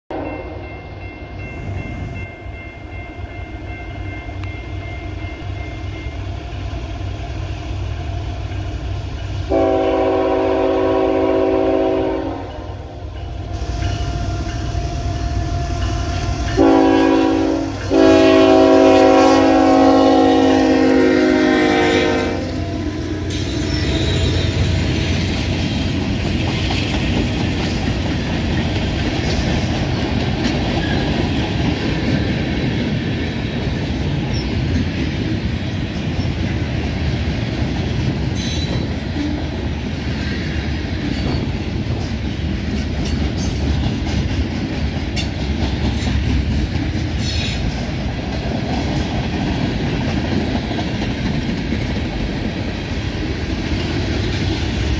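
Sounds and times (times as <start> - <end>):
train air horn: 0.1 - 0.8, 9.5 - 25.1
diesel locomotive rumble: 1.3 - 54.9.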